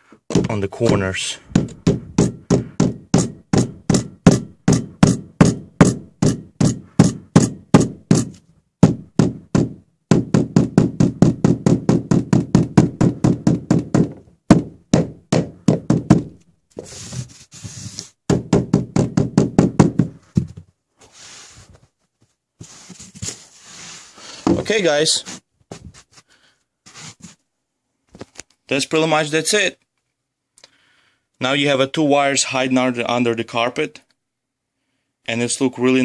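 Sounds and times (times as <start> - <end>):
mallet knocking on metal: 1.5 - 16.3
hand brushing carpet: 16.8 - 18.2, 21.0 - 21.9, 22.6 - 24.3, 26.9 - 27.4.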